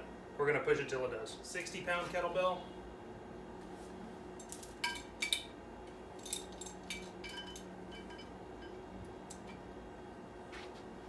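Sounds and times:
chain links clinking: 0:04.4 - 0:05.5, 0:06.2 - 0:08.3, 0:09.3 - 0:09.6.

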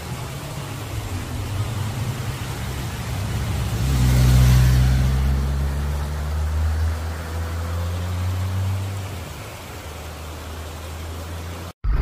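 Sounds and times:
motorcycle passing by: 0:01.4 - 0:09.6.

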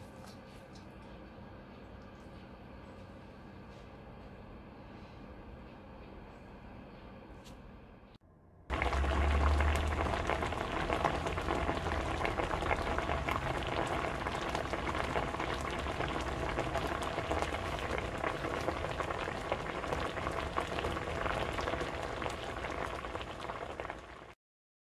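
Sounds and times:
low rumble: 0:08.3 - 0:20.5.

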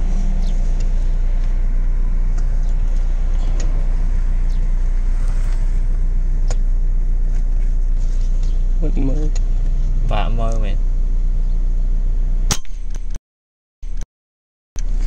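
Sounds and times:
low outdoor rumble: 0:00.0 - 0:13.2
sharp click: 0:12.5 - 0:13.2.

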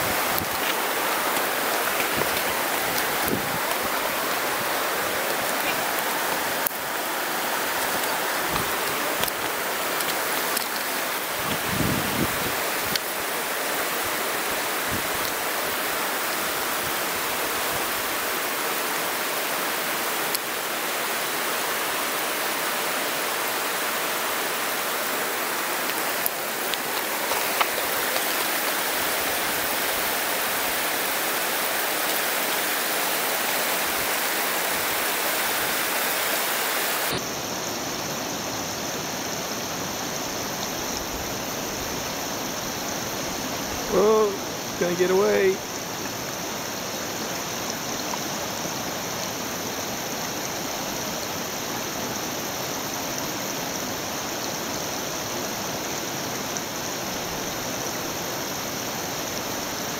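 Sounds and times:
river rapids rushing: 0:00.0 - 0:40.2.

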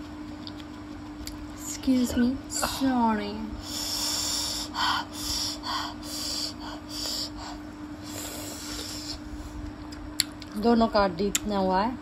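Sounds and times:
faint steady hum: 0:00.0 - 0:12.0
hissing sucks and sniffs: 0:08.0 - 0:09.3.

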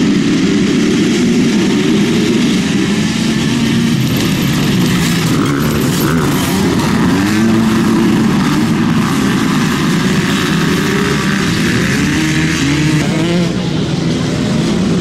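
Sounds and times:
motocross bikes revving: 0:00.0 - 0:15.0.

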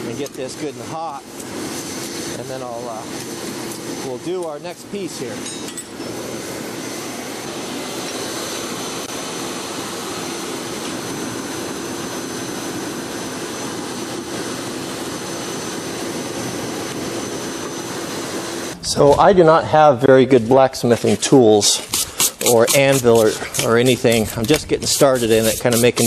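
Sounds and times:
forge air blower rushing: 0:00.0 - 0:26.0.

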